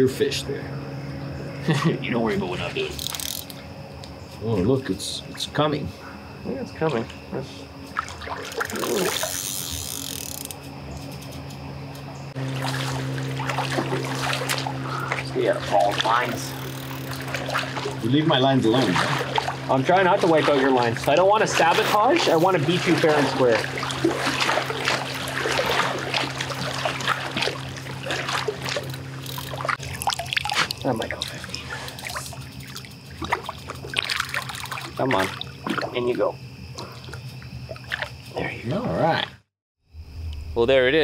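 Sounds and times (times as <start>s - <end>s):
steady low hum: 0.0s - 39.2s, 39.9s - 41.0s
water splashing and trickling: 6.8s - 11.4s, 12.3s - 38.6s.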